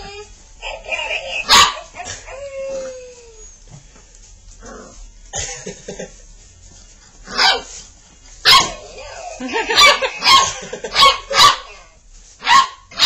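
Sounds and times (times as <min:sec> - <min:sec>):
puppies barking: 0:00.1 - 0:02.5, 0:07.3 - 0:07.8, 0:08.4 - 0:13.0.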